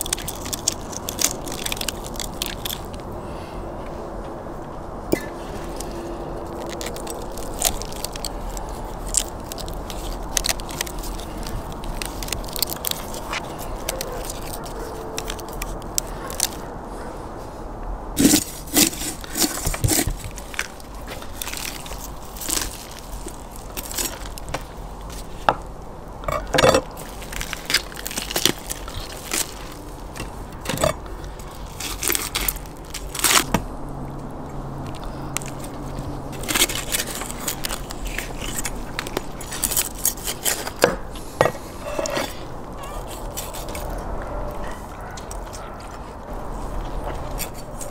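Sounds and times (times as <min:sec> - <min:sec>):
joints cracking: 0:00.0 - 0:03.1, 0:05.1 - 0:16.7
crackling roasted skin: 0:00.0 - 0:03.5, 0:05.1 - 0:16.8, 0:18.2 - 0:47.9.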